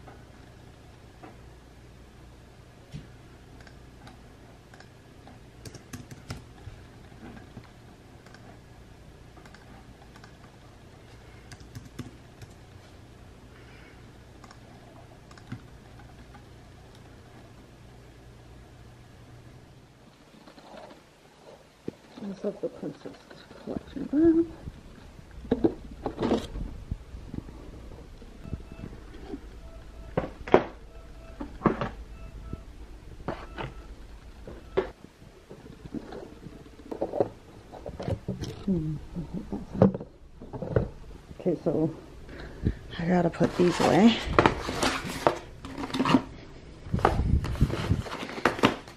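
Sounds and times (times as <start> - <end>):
low steady hum: 0.0 - 48.9
computer keyboard typing: 3.6 - 4.9, 5.6 - 6.6, 8.2 - 8.5, 9.4 - 10.5, 11.5 - 12.6, 15.2 - 17.0.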